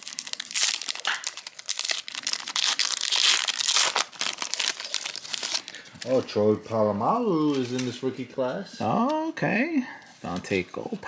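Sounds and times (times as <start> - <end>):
foil wrapper crinkling: 0.0 - 6.3.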